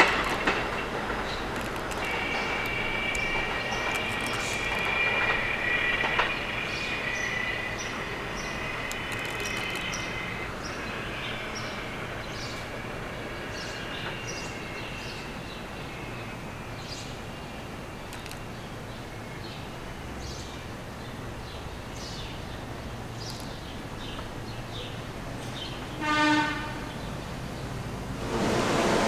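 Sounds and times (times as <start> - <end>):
train wheels squealing: 0.0 - 18.4
train cars rumbling: 0.0 - 29.0.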